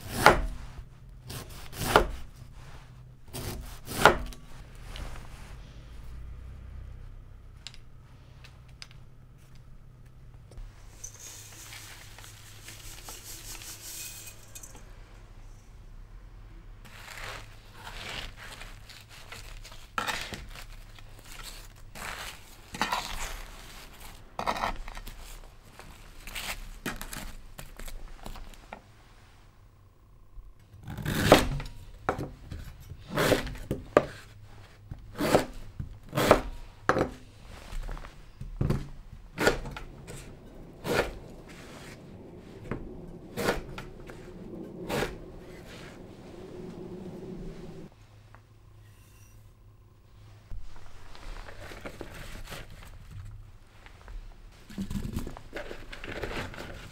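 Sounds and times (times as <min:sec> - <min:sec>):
sugar pouring in a hissing stream: 0:10.9 - 0:14.7.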